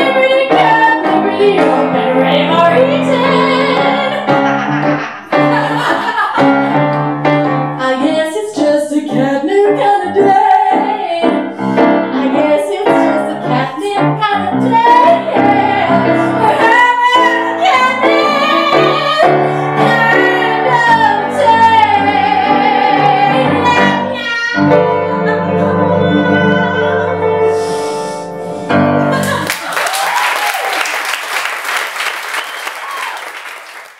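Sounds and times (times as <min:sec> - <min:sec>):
woman singing: 0:00.0 - 0:04.3, 0:07.8 - 0:27.3
piano accompaniment: 0:00.0 - 0:29.7.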